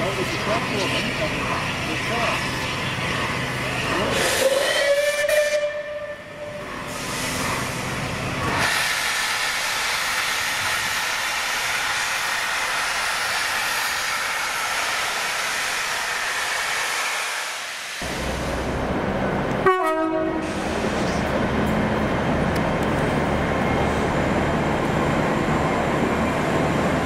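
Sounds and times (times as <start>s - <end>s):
train whistle: 4.2s - 6.7s, 19.6s - 20.6s
loud steady hiss: 8.5s - 18.8s.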